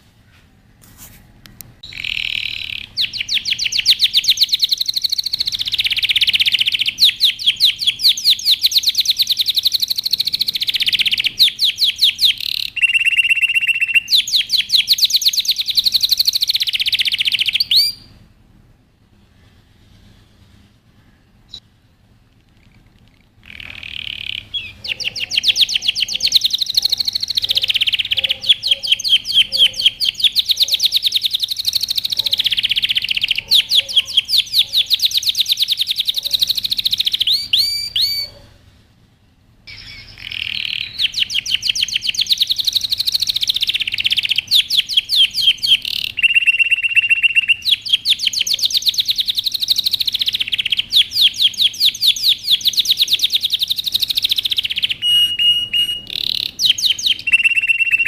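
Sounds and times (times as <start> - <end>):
canary singing trills: 1.8 - 18.2, 19.3 - 38.6, 39.7 - 58.0.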